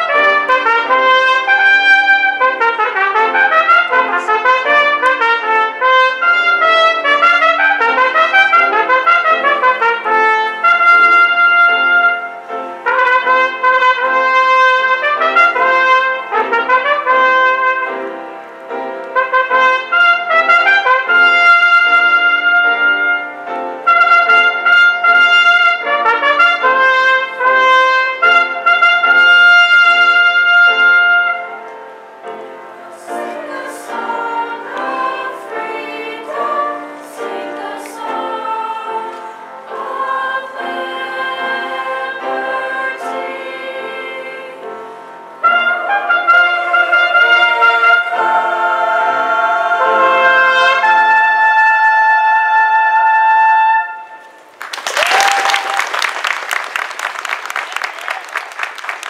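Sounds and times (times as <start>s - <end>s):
choir singing: 0.0s - 12.3s, 32.8s - 51.9s
trumpet playing slow melody: 0.0s - 38.1s, 40.8s - 54.3s.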